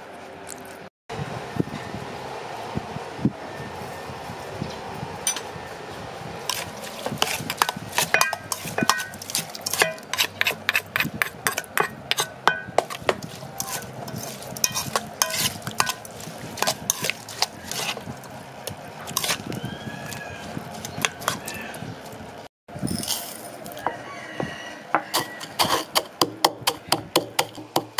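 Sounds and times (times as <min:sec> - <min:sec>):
metal spoon scraping steel bowl: 0:06.5 - 0:18.1, 0:19.0 - 0:19.6, 0:24.9 - 0:26.2.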